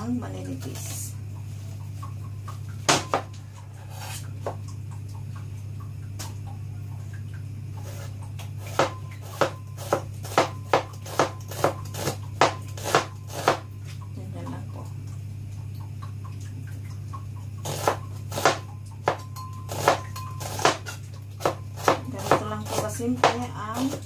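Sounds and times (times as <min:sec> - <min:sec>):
steady low hum: 0:00.0 - 0:24.0
knife chopping onion on board: 0:02.9 - 0:03.3, 0:07.8 - 0:13.7, 0:17.6 - 0:24.0.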